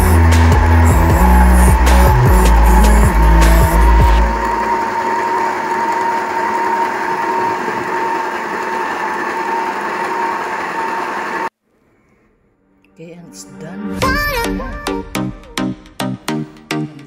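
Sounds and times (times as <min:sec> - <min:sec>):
stand mixer motor whine: 0:00.0 - 0:11.5.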